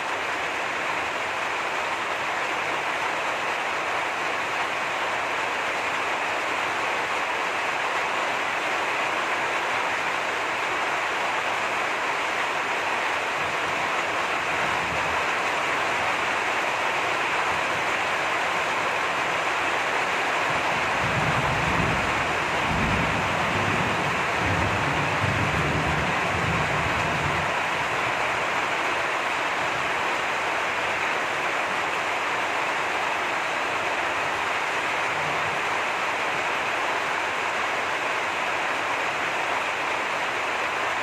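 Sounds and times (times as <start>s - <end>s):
heavy rain falling: 0.0s - 41.0s.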